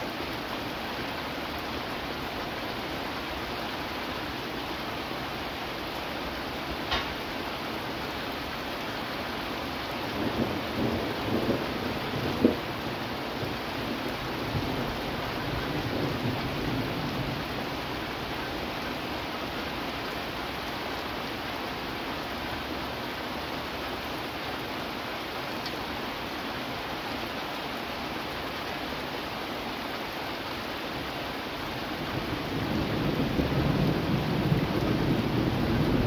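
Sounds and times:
steady rain falling: 0.0 - 36.0
thunder rumbling: 10.1 - 18.1, 32.0 - 36.0.

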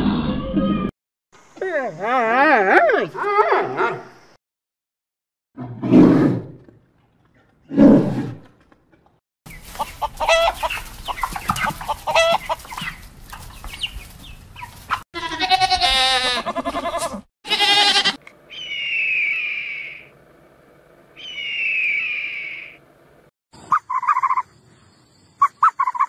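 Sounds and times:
chickens clucking: 9.5 - 15.0
goats bleating: 15.2 - 18.2
bird of prey screeching: 17.7 - 20.1, 21.2 - 22.8.

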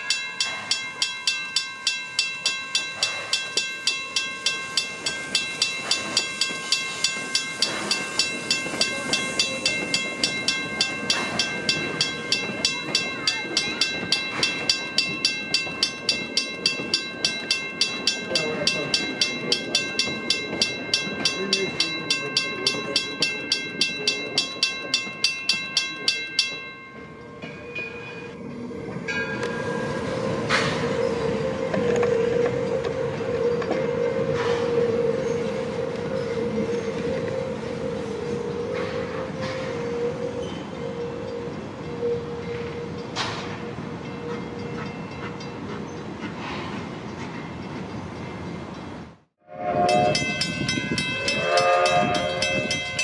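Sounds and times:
ringing metallic tones: 0.0 - 34.3, 49.4 - 53.0
steam locomotive running: 0.0 - 53.0.

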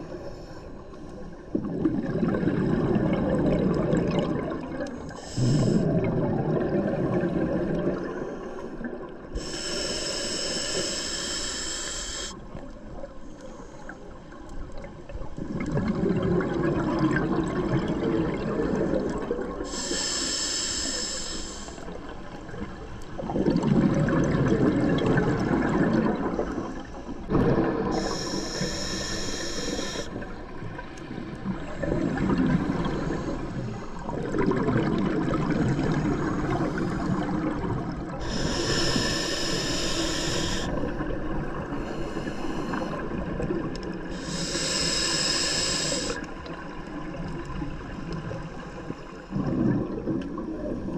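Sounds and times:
exhaled bubbles gurgling: 0.0 - 11.4, 14.3 - 50.9
regulator inhalation hiss: 5.2 - 5.9, 9.4 - 12.4, 19.7 - 22.0, 27.9 - 30.2, 38.2 - 40.9, 41.8 - 43.1, 44.0 - 46.3.

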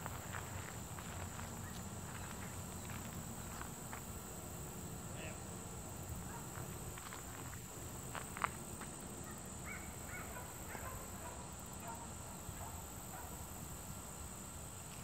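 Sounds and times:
distant animal calls: 9.2 - 12.0.

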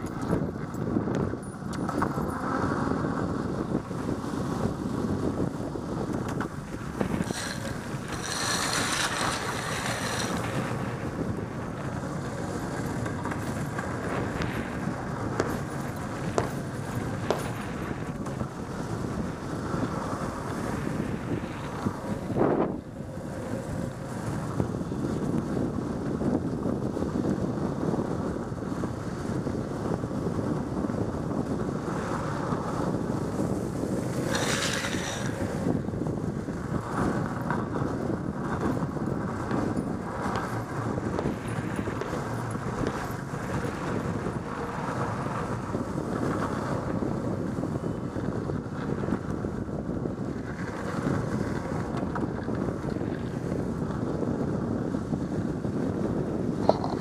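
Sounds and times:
wind buffeting microphone: 0.0 - 57.0.

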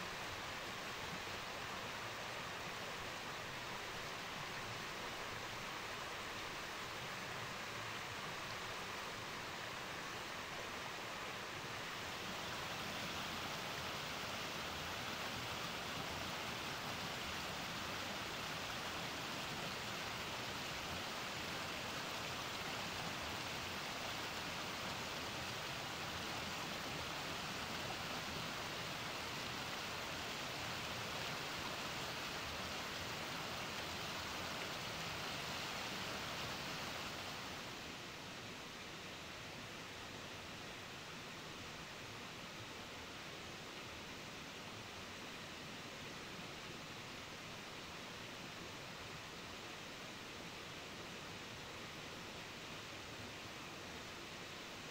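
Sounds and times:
waterfall rushing and splashing: 0.0 - 38.4.

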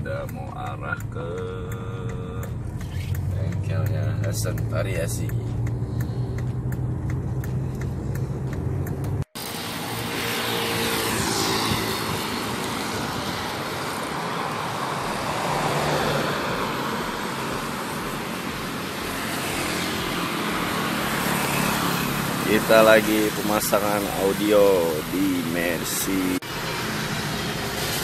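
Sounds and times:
car interior drive hum: 0.0 - 9.3, 11.7 - 21.4
vehicles passing by: 0.0 - 28.0.

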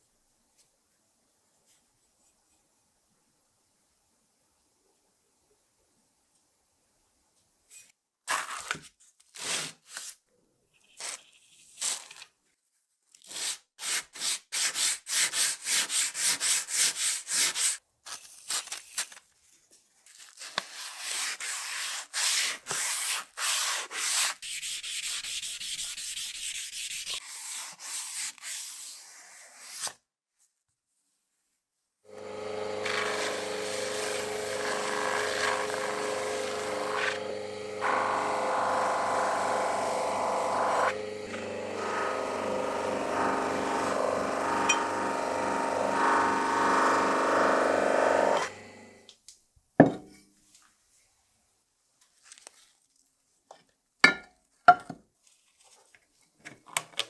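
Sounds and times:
sandpaper rubbing on metal: 20.7 - 29.8
buffing wheel motor hum: 32.1 - 49.1.

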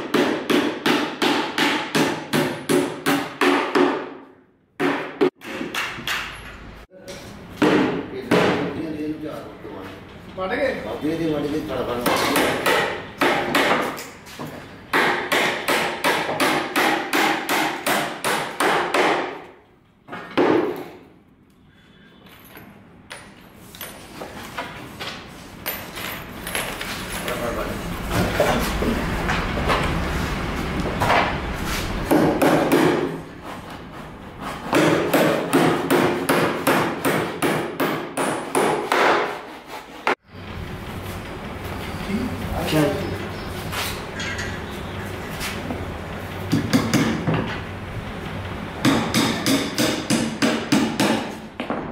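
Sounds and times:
hammer nailing wood: 0.0 - 4.2, 4.8 - 6.4, 12.0 - 14.0, 14.9 - 19.5, 32.1 - 33.2, 34.6 - 40.2, 48.8 - 51.4.

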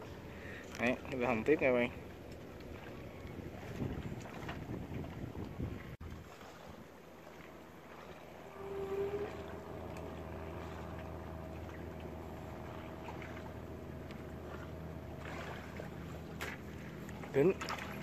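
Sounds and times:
boat engine running: 0.0 - 18.0
brief tone: 8.4 - 11.9.

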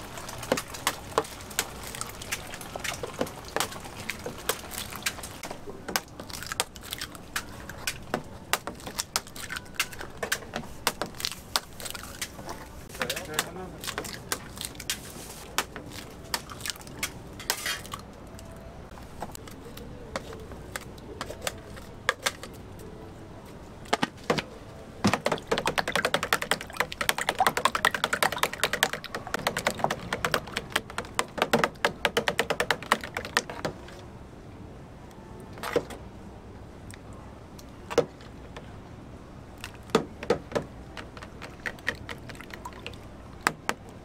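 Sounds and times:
spatula beating eggs in tub: 25.3 - 33.7
eggs cracking on plastic tub: 39.6 - 42.6.

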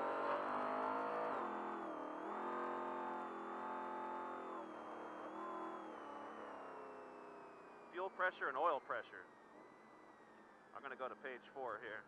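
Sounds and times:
race engine accelerating: 0.0 - 8.0.

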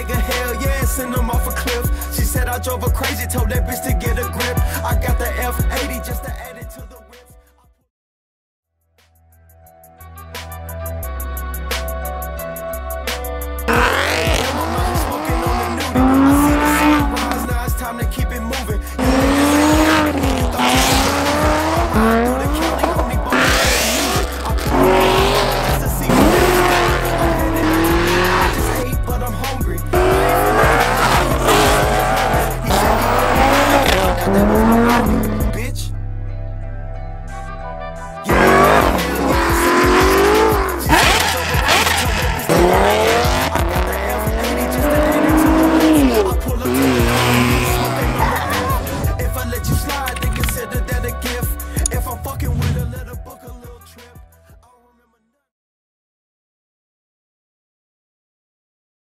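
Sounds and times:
hip-hop music with heavy bass: 0.0 - 7.8, 9.3 - 55.2
car engines revving: 13.7 - 17.6, 18.8 - 35.6, 38.3 - 50.6, 52.3 - 53.1
tire squeal: 19.1 - 28.8, 38.3 - 49.0.

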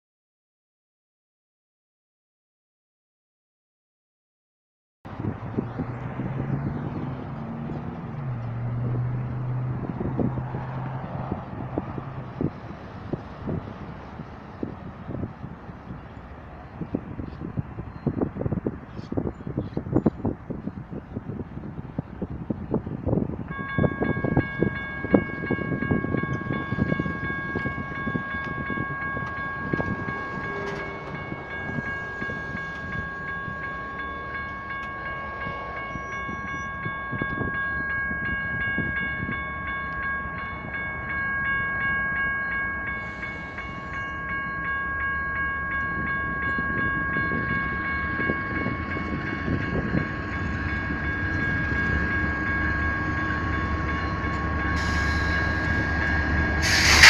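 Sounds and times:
low train rumble: 5.1 - 57.0
traffic and wind noise: 5.1 - 57.0
electronic crossing bells ringing: 22.2 - 57.0.

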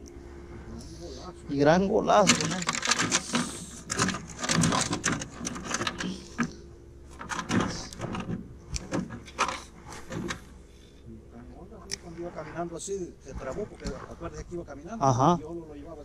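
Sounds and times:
fishing gear clicking in aluminum boat: 2.1 - 10.6.

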